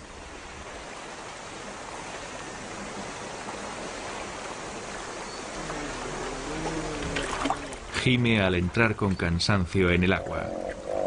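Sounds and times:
river water rushing: 0:00.0 - 0:08.8.

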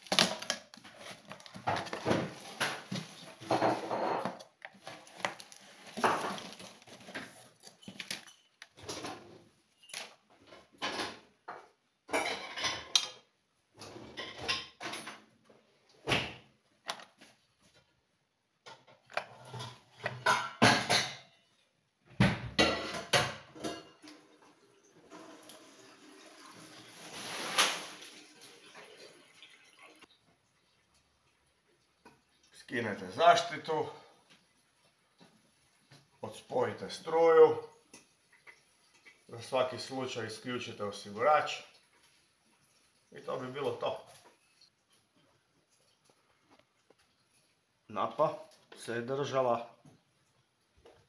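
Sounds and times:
rustling and scraping: 0:00.0 - 0:10.8, 0:26.9 - 0:28.1.

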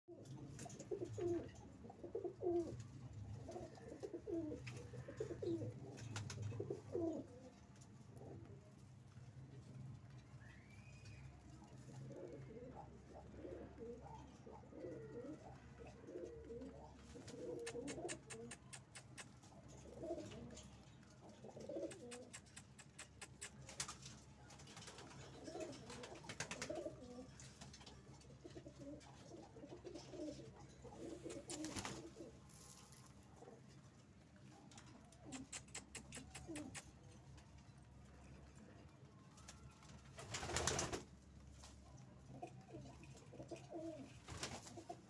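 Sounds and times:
pigeons cooing: 0:00.1 - 0:08.7, 0:11.6 - 0:23.8, 0:25.2 - 0:27.4, 0:28.2 - 0:33.8, 0:34.6 - 0:37.2, 0:42.2 - 0:45.0
pigeons pecking grain on concrete: 0:00.1 - 0:45.0.

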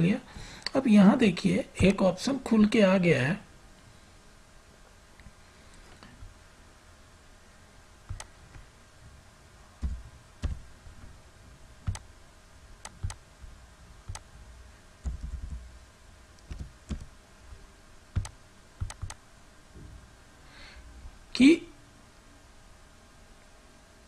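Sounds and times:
faint hiss: 0:00.0 - 0:24.0
mouse and keyboard clicking: 0:08.1 - 0:08.3, 0:11.8 - 0:12.1, 0:12.8 - 0:13.2, 0:14.1 - 0:14.3, 0:15.0 - 0:15.6, 0:16.4 - 0:17.1, 0:18.2 - 0:19.2.

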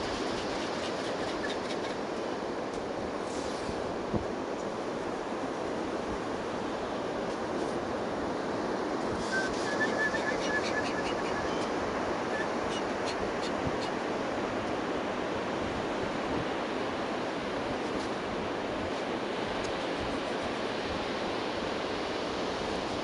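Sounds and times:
ocean surf breaking on a beach: 0:00.0 - 0:23.0
wind on the microphone: 0:03.0 - 0:04.5.

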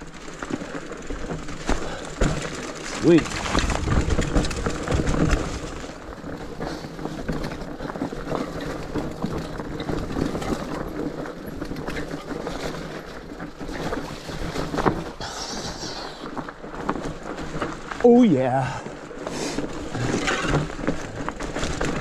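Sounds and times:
bike knocks and rattles: 0:00.0 - 0:22.0
bike tyres on dirt trail: 0:00.0 - 0:22.0.

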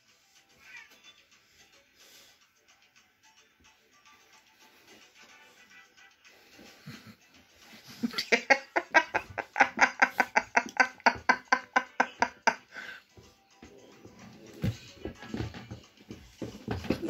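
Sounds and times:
person laughing: 0:06.8 - 0:12.9.

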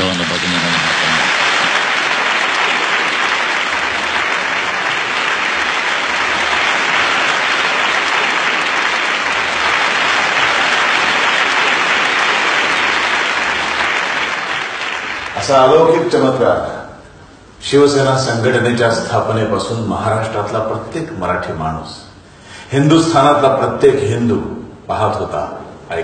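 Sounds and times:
crowd applauding: 0:00.0 - 0:16.5.

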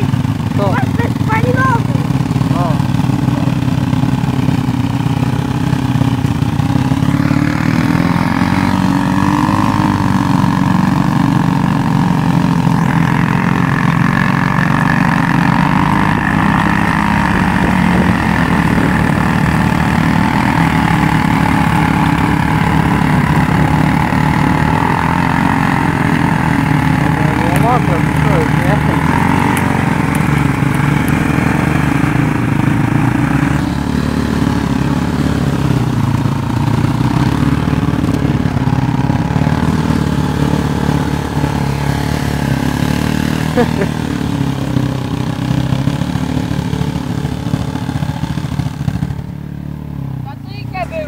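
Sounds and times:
quad engine running: 0:00.0 - 0:51.0
wheels splashing through water: 0:12.3 - 0:49.1.

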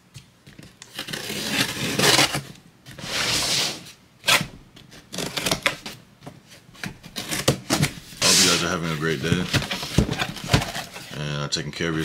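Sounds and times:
blade slitting packing tape: 0:00.9 - 0:02.4, 0:05.1 - 0:05.8.

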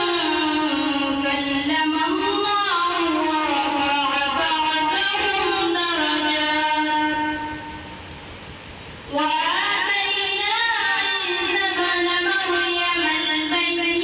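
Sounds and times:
boy reciting melodically: 0:00.0 - 0:07.9, 0:09.1 - 0:14.0.

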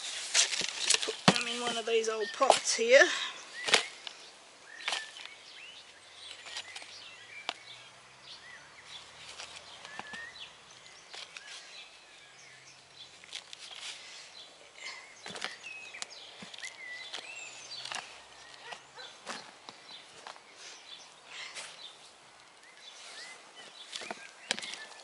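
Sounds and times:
small birds chirping: 0:00.0 - 0:25.0
hands handling a plastic pot: 0:00.1 - 0:02.8, 0:09.2 - 0:10.3, 0:14.8 - 0:20.5, 0:23.6 - 0:25.0.

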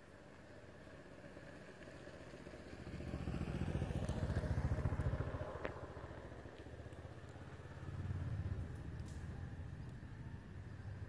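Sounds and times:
passing vehicle engine rumble: 0:00.0 - 0:11.0.

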